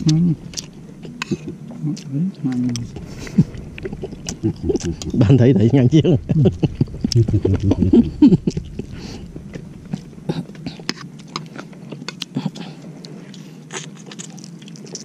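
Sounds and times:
close chewing: 0.0s - 5.2s, 7.0s - 15.0s.

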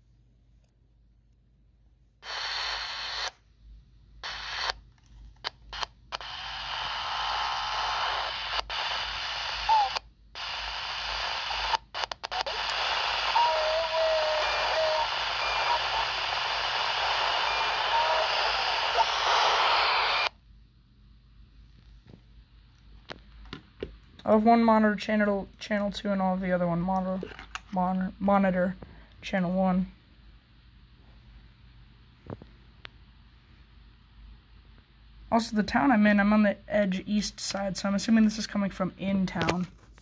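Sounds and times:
walkie-talkie static hiss: 2.2s - 3.4s, 4.2s - 4.8s, 5.4s - 20.4s.

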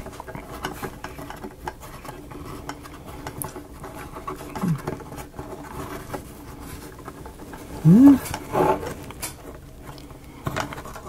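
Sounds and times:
low hum of a voice: 4.6s - 4.9s, 7.8s - 8.4s.

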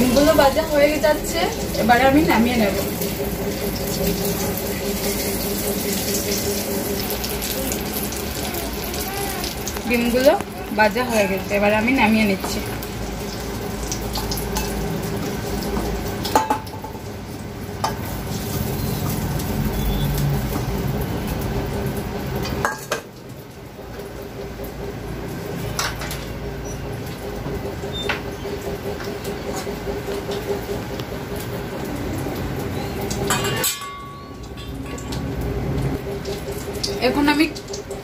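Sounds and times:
utensils clinking on steel: 33.1s - 35.4s.

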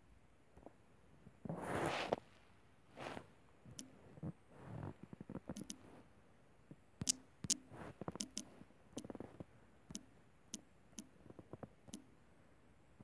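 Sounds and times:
fingers tapping phone screen: 5.4s - 5.9s, 7.0s - 12.1s.

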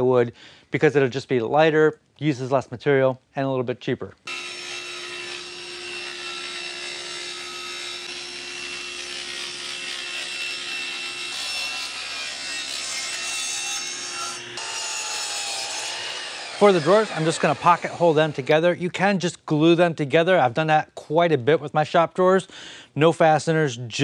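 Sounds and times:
table saw ripping plywood: 4.3s - 18.6s
miter saw blade winding down: 4.3s - 18.7s.

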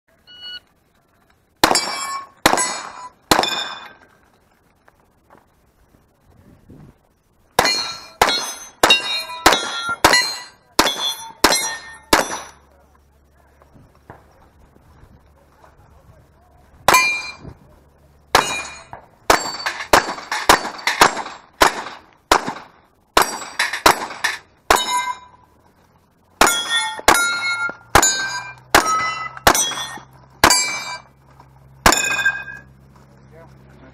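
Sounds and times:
pistol shots: 1.6s - 4.0s, 7.6s - 12.6s, 18.3s - 25.2s, 26.4s - 31.0s
steel plate ringing: 1.6s - 4.0s, 7.6s - 12.6s, 16.9s - 17.5s, 18.4s - 21.0s, 23.2s - 25.5s, 26.4s - 31.2s, 31.8s - 32.8s.

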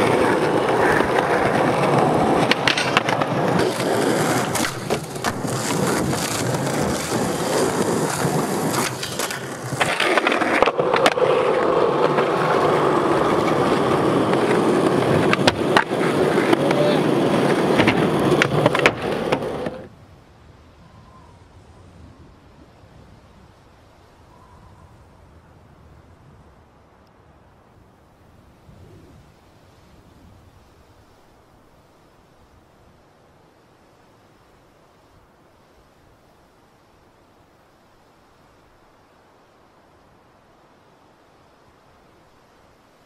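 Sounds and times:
skateboard clacking on ground: 0.0s - 19.9s
skateboard wheels rolling on concrete: 0.0s - 43.0s.

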